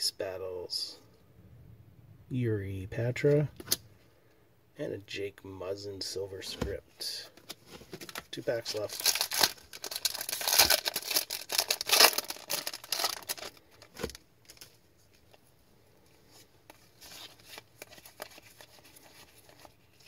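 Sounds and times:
cards rustling and ticking: 7.3s - 15.4s, 16.6s - 20.0s
foil wrapper tearing and crinkling: 8.7s - 14.6s.

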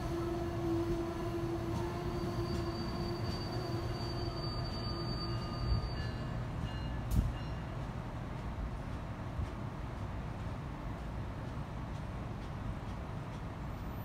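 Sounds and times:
low tone from train: 0.0s - 9.6s, 13.4s - 14.0s
train rumbling past: 0.0s - 14.0s.

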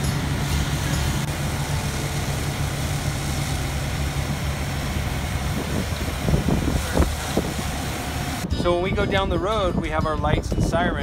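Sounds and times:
water spraying onto concrete: 0.0s - 8.4s
fire engine pump humming: 0.0s - 9.1s.

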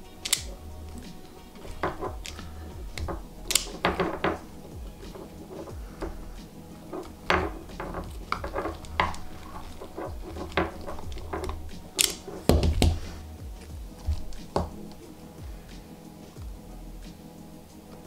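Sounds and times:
plastic connectors clicking and rattling: 0.0s - 6.3s, 6.9s - 13.0s.

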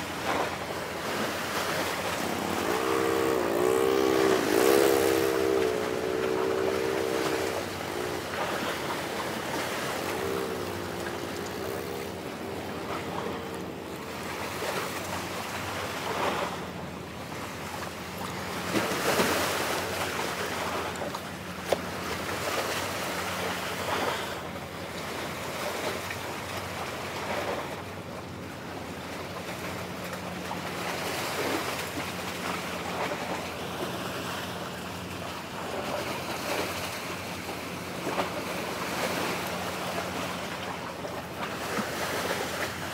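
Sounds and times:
steady low hum: 0.0s - 24.7s
waves washing against breakwater: 0.0s - 42.9s.

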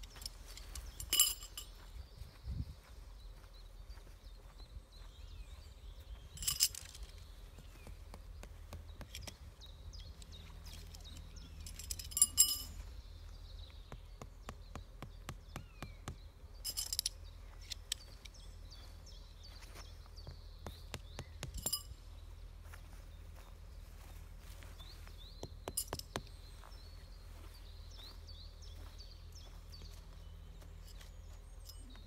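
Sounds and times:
metal tent pegs clinking: 0.0s - 1.8s, 6.4s - 7.3s, 10.0s - 12.8s, 16.6s - 18.1s, 21.2s - 22.0s, 25.7s - 26.2s
birds chirping: 0.0s - 32.0s
steady low hum: 0.0s - 32.0s.

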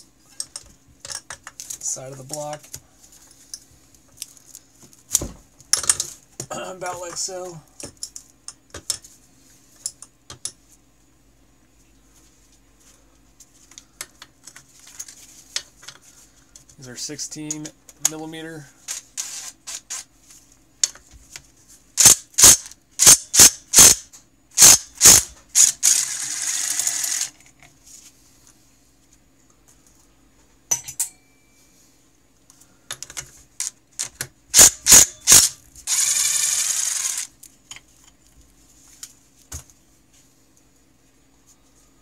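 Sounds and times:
fast ratcheting buzz: 22.0s - 24.0s, 24.6s - 27.3s, 34.5s - 37.3s
ratchet wrench clicking: 22.0s - 24.0s, 24.6s - 27.3s, 34.6s - 37.3s.

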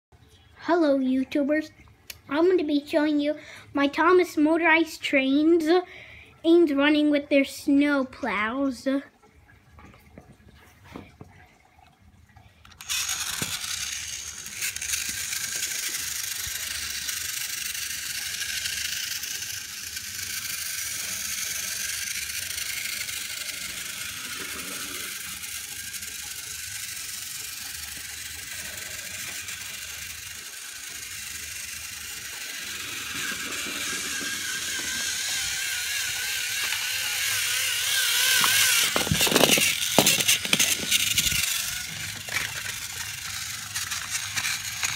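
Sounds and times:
toy train motors whirring: 2.5s - 5.8s, 12.6s - 44.9s.

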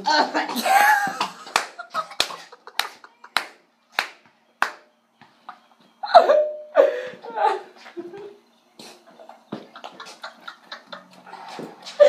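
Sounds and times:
sharp hand claps: 1.4s - 4.9s.

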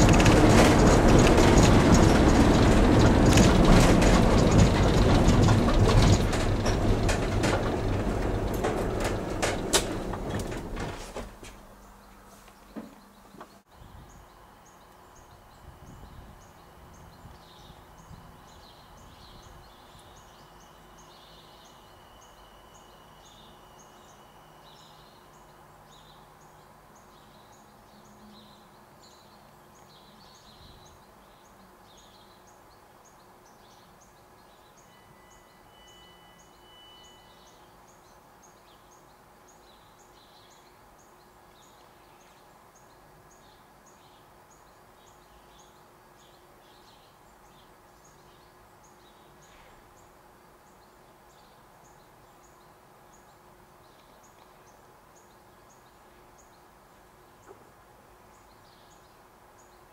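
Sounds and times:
small birds chirping: 36.4s - 59.9s.

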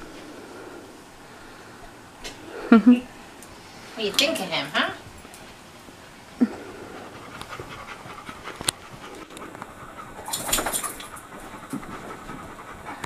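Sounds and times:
dog panting: 6.0s - 13.0s.

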